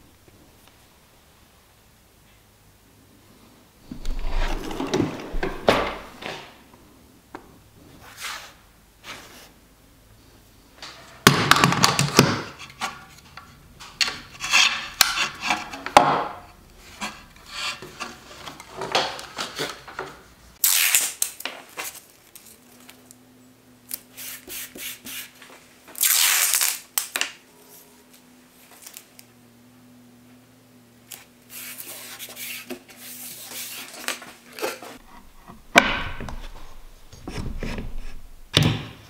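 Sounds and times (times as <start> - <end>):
faint steady hum: 0.0 - 11.2, 21.6 - 26.1, 26.8 - 39.0
wood scraping and knocking on wood: 3.8 - 6.6, 12.0 - 20.2, 32.2 - 39.0.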